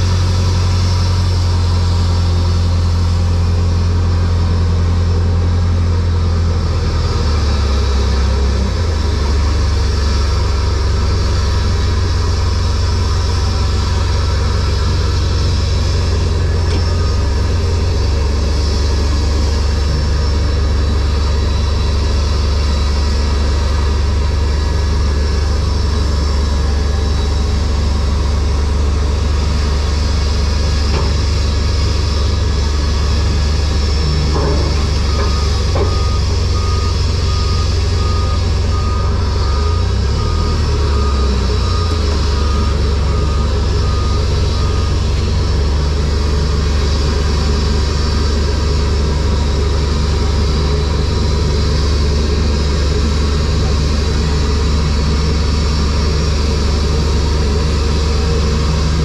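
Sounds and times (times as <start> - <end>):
heavy diesel engine rumble: 0.0 - 59.0.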